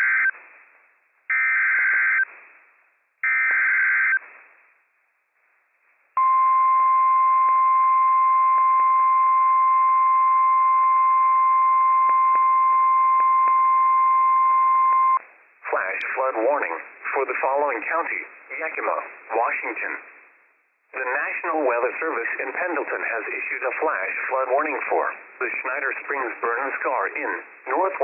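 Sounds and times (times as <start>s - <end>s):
radio hiss: 15.2s - 20.3s, 21.0s - 28.0s.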